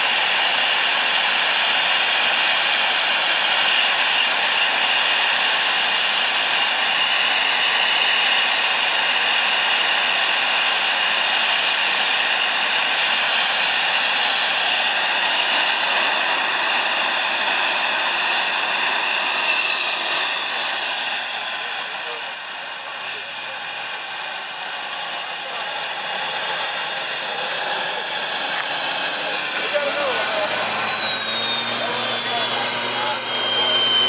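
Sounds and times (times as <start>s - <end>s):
jet engines roaring: 0.0s - 34.0s.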